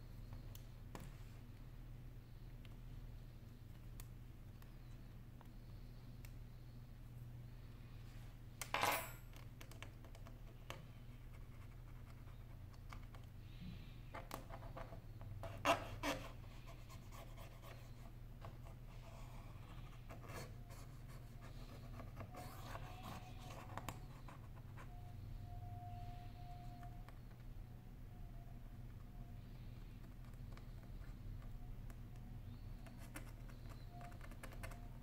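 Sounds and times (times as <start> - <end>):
steady low hum: 0.0 - 35.0
tool scratching and clicking on phone: 14.3 - 27.3.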